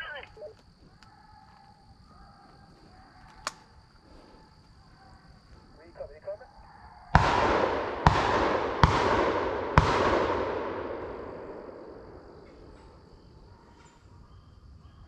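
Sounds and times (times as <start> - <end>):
shotgun shots echoing: 7.1 - 13.6.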